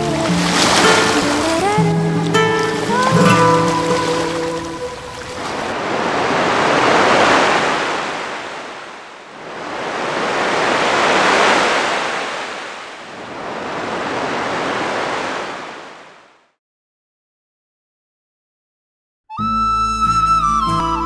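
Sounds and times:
ocean waves breaking: 0:00.0 - 0:16.5.

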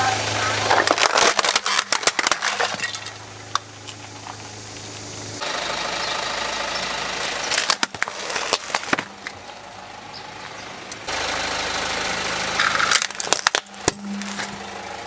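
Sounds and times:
car engine idling: 0:00.0 - 0:15.0
plastic toys cracking under tyre: 0:00.7 - 0:05.0, 0:07.2 - 0:09.4, 0:12.6 - 0:14.5.

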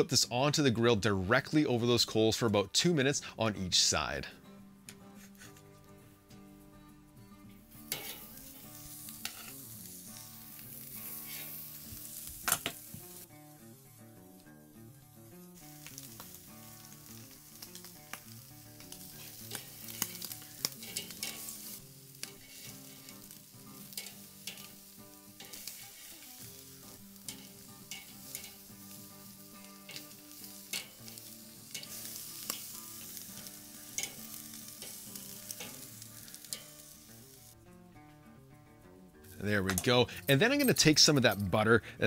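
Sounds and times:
skewers sizzling on a grill: 0:07.6 - 0:37.6
metal tongs clicking: 0:07.9 - 0:08.3, 0:19.5 - 0:21.5, 0:23.9 - 0:24.7, 0:25.4 - 0:25.8, 0:27.3 - 0:28.6, 0:29.9 - 0:31.0, 0:31.7 - 0:32.7, 0:33.9 - 0:34.2, 0:34.8 - 0:35.8, 0:36.4 - 0:36.8.

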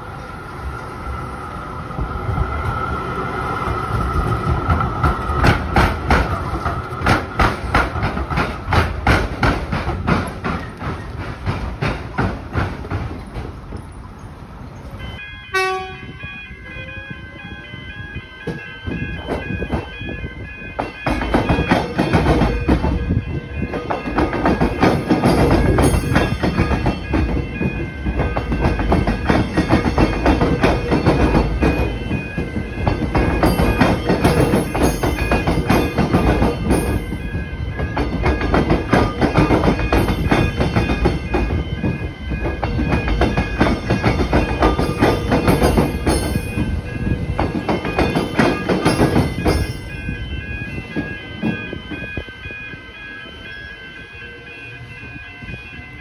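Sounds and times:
electric trains rumbling: 0:00.0 - 0:56.0
train wheels clattering over rails: 0:02.0 - 0:14.4, 0:18.4 - 0:52.2
level crossing warning bells: 0:14.2 - 0:56.0.

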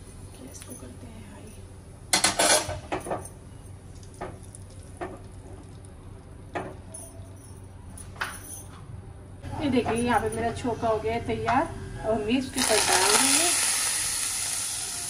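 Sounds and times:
faint sizzle of spices in oil: 0:12.6 - 0:15.0.

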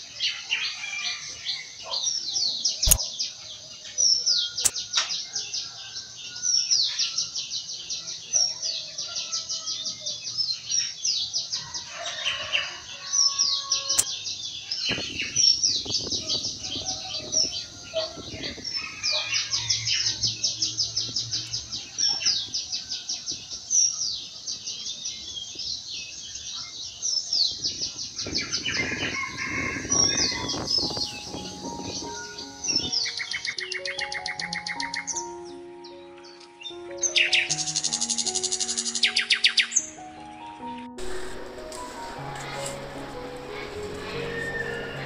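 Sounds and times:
small birds chirping: 0:00.0 - 0:40.4.

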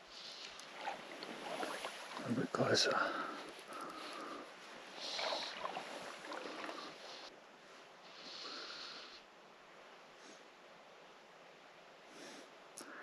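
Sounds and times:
quiet water movement: 0:00.0 - 0:13.0
breathing through the nose: 0:02.9 - 0:07.3, 0:08.1 - 0:09.2, 0:12.1 - 0:13.0.

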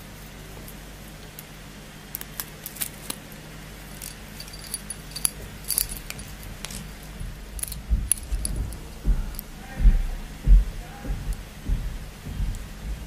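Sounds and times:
steady low hum: 0:00.0 - 0:13.0
wrapping clicks and crinkles: 0:02.1 - 0:08.8.

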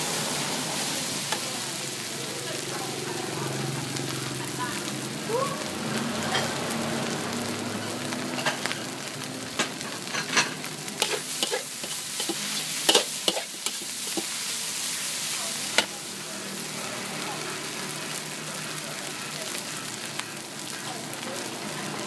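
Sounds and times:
rice sizzling in a wok: 0:00.0 - 0:22.0
metal spatula scraping a wok: 0:09.9 - 0:14.9.

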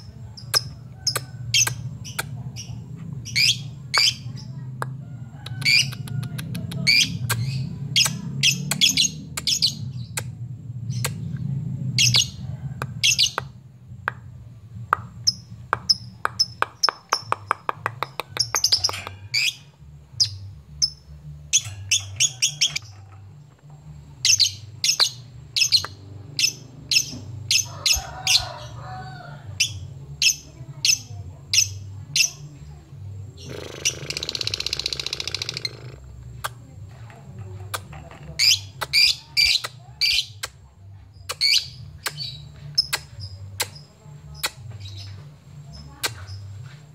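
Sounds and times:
bird chirping: 0:05.6 - 0:11.4, 0:33.4 - 0:36.6
fast rattling bird trill: 0:33.4 - 0:36.1.

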